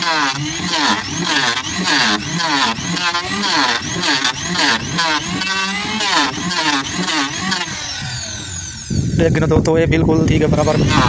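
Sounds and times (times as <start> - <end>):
power planer cutting wood: 0.0 - 9.3, 10.2 - 11.0.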